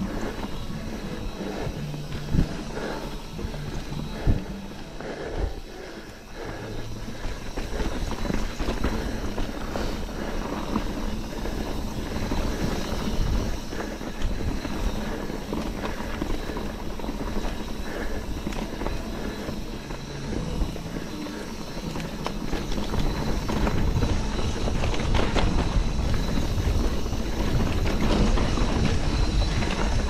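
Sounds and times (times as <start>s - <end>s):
bike rattles and clicks: 0.0s - 30.0s
bike tyres on dirt trail: 0.0s - 30.0s
wind on microphone: 7.4s - 30.0s.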